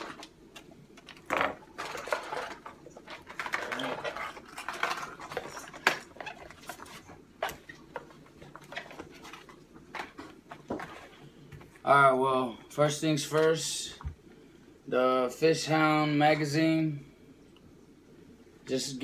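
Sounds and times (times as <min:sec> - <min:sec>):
plastic packaging crinkling: 0:00.0 - 0:11.8.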